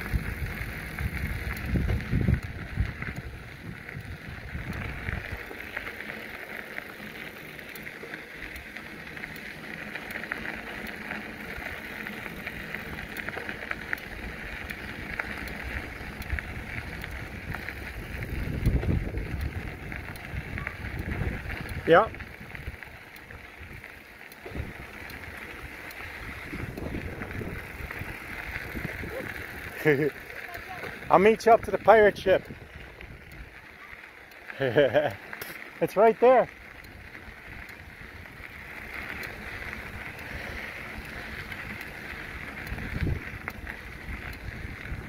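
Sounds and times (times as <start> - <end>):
wind buffeting microphone: 0.0 - 5.8, 11.4 - 33.8, 36.7 - 45.0
bicycle tyre riding noise: 0.0 - 45.0
small clicks: 1.0 - 45.0.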